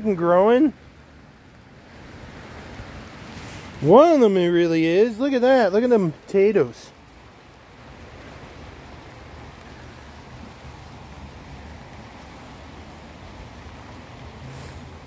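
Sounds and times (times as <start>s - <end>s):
even hiss: 2.4s - 7.0s, 9.4s - 15.0s.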